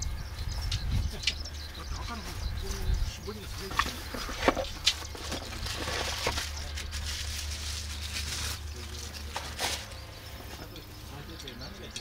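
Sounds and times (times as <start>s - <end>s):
constant low hum: 0.0s - 12.0s
plastic packaging rustling: 3.8s - 10.0s.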